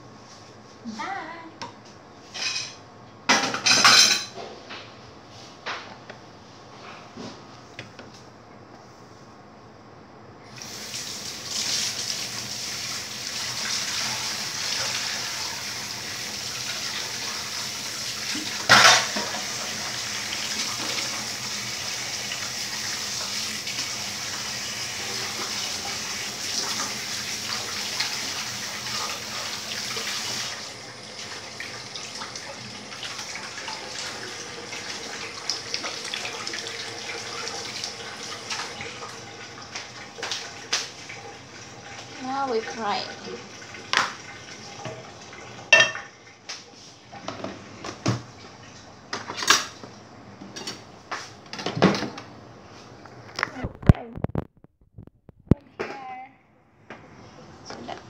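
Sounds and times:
tap water running into steel sink: 10.6 - 46.2.

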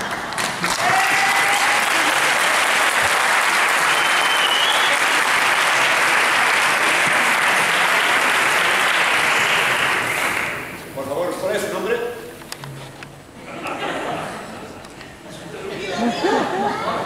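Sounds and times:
audience applauding: 0.0 - 10.8
high whistle: 3.8 - 5.2.

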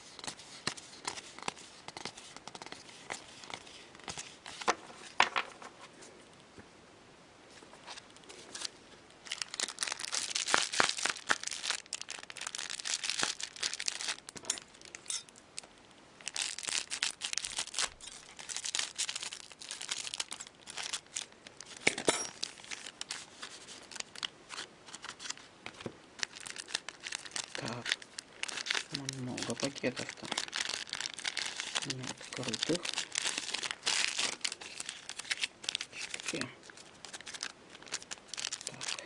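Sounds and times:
cards shuffling: 0.2 - 5.9
foil packs crinkling and tearing: 8.5 - 39.0.

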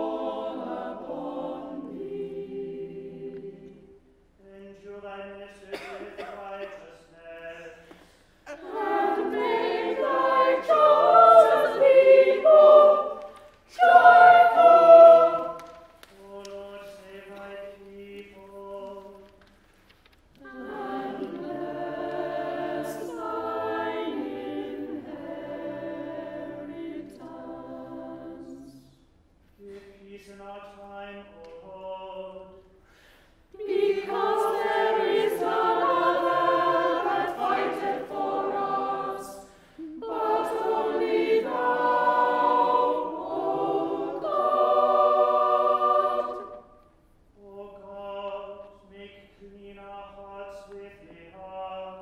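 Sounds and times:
unaccompanied choir singing: 0.0 - 4.1, 5.7 - 6.3, 8.4 - 19.2, 20.4 - 29.0, 33.5 - 52.0
cantor chanting: 4.4 - 7.9, 8.5 - 19.3, 29.6 - 32.7, 33.6 - 46.8, 47.4 - 52.0.

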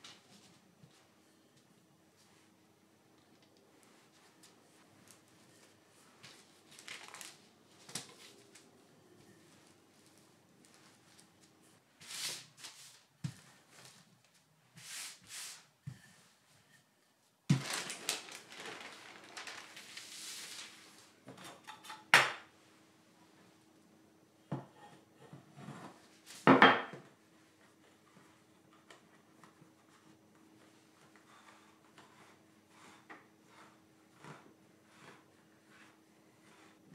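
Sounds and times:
parchment paper rustling: 3.7 - 8.8, 17.5 - 21.2
rolling pin rolling over dough: 14.7 - 16.8, 27.6 - 36.9.

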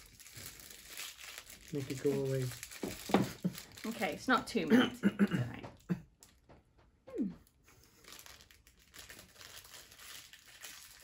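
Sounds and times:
plastic wrapper crinkling: 0.0 - 4.5, 7.5 - 11.0.

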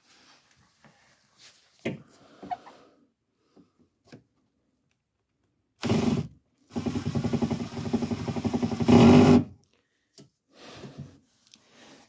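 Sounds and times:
cordless drill drilling into steel: 5.8 - 9.5.

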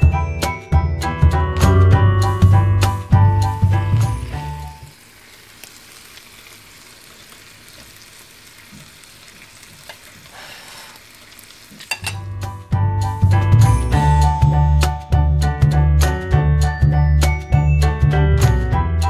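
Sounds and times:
music: 0.0 - 4.9, 12.0 - 19.0
meat sizzling on a grill: 3.0 - 12.1.

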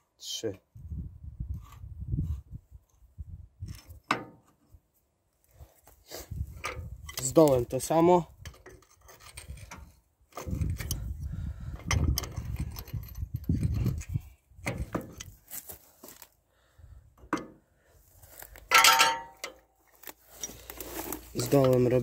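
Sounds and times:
metal clinking and scraping: 8.4 - 11.1, 11.7 - 15.4, 18.6 - 22.0.

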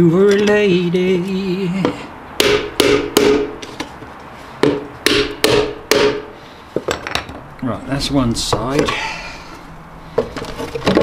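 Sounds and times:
hammer driving nails into wood: 2.4 - 3.6, 4.6 - 7.2.

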